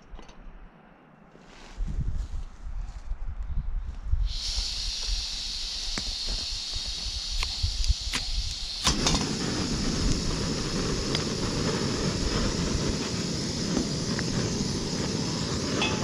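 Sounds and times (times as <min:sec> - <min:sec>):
gas burner hissing: 0:04.1 - 0:16.0
lighter clicks: 0:05.8 - 0:06.4, 0:07.2 - 0:09.4.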